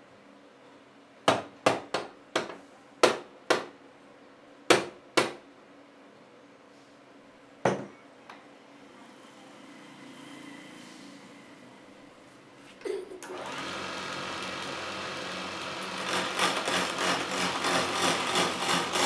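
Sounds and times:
lathe motor hum: 0:13.2 - 0:19.0.

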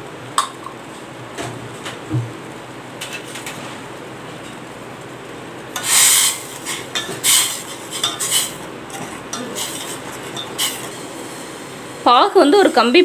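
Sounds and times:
ladle scraping steel pot: 0:05.8 - 0:11.0.

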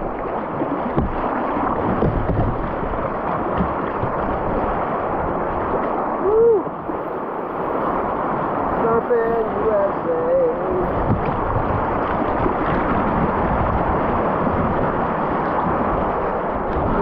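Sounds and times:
rapids rushing and splashing: 0:00.0 - 0:17.0
person shouting: 0:06.2 - 0:06.7.

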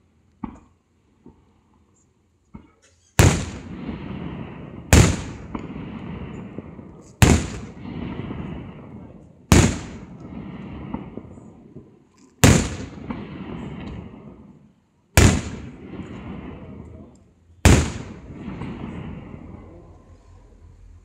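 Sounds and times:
firework shells bursting: 0:03.1 - 0:08.8, 0:09.4 - 0:14.3, 0:15.2 - 0:16.6, 0:17.7 - 0:19.4
long rolling rumble: 0:03.2 - 0:21.0.

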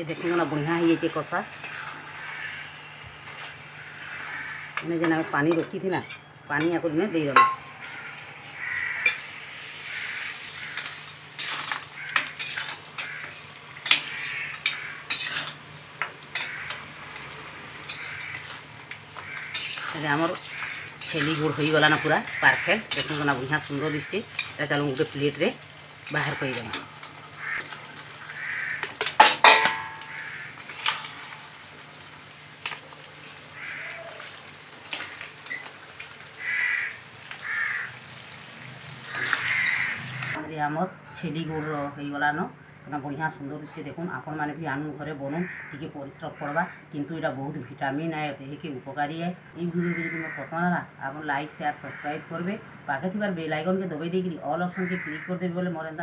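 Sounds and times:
steel spatula scraping a pan: 0:00.0 - 0:04.8, 0:10.0 - 0:15.6, 0:16.3 - 0:16.8, 0:17.8 - 0:18.6, 0:19.2 - 0:24.6
crows cawing: 0:01.7 - 0:04.9, 0:07.7 - 0:15.5, 0:16.3 - 0:17.1, 0:17.9 - 0:23.1, 0:26.1 - 0:31.0, 0:32.8 - 0:35.2, 0:36.3 - 0:40.4, 0:45.4 - 0:46.8, 0:49.8 - 0:50.6, 0:51.8 - 0:52.4, 0:54.7 - 0:55.4
ladle clanging against metal pot: 0:05.5 - 0:07.7, 0:28.8 - 0:31.2.

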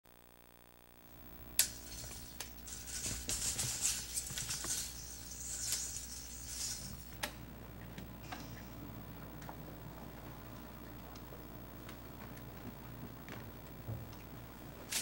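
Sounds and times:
tape measure rattling and scraping: 0:01.6 - 0:07.2.

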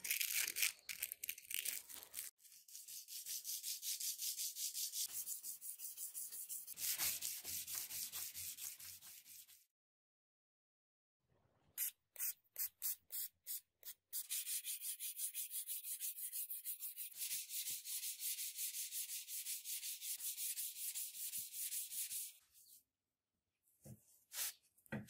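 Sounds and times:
sandpaper strokes on steel blade: 0:02.5 - 0:09.6, 0:12.7 - 0:22.4.

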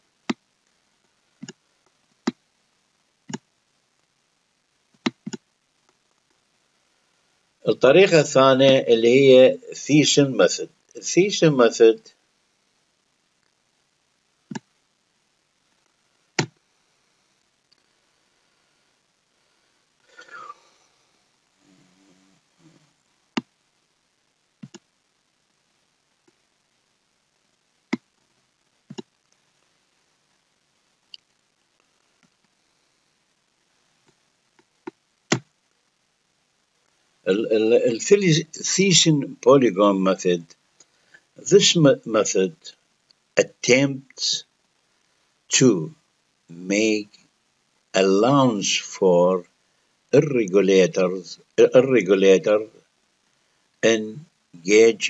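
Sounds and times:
computer mouse clicking: 0:24.6 - 0:24.8.

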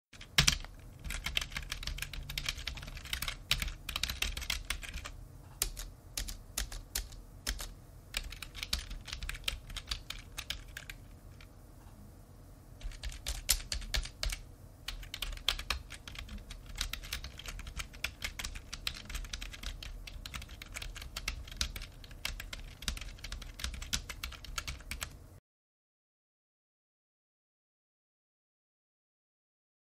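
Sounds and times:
keyboard typing: 0:00.2 - 0:11.5, 0:12.8 - 0:25.2.

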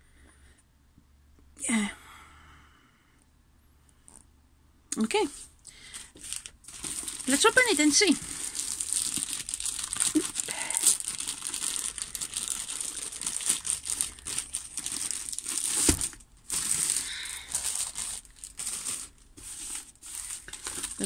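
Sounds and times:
packaging crinkling: 0:05.8 - 0:21.0.

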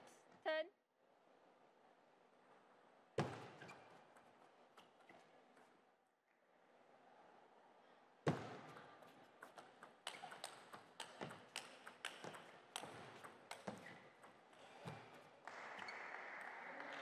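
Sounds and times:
ping pong ball clicking: 0:09.4 - 0:14.6.

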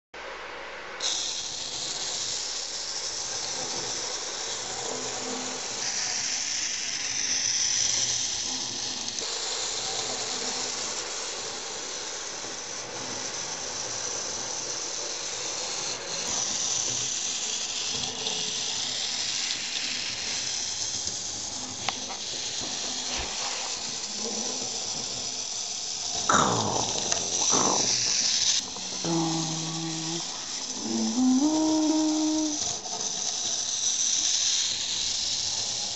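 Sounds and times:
model train motor whine: 0:01.0 - 0:35.9.

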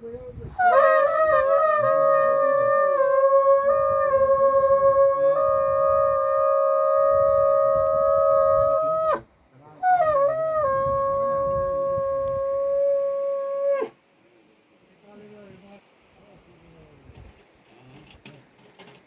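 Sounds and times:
horn blowing long notes: 0:00.6 - 0:09.2.

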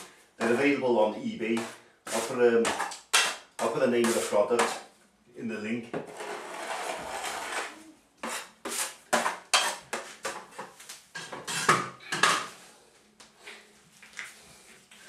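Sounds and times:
blade scraping plaster ceiling: 0:06.0 - 0:11.8.

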